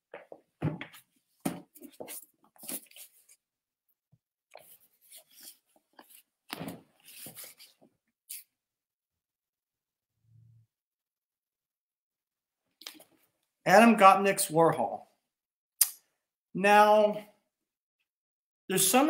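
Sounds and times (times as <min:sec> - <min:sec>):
book rustling and bumping: 0:00.2 - 0:03.3, 0:04.9 - 0:07.9.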